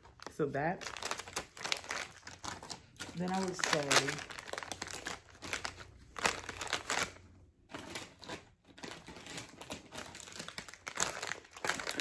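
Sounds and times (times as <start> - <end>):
plastic chip bags crinkling: 0.0 - 12.0.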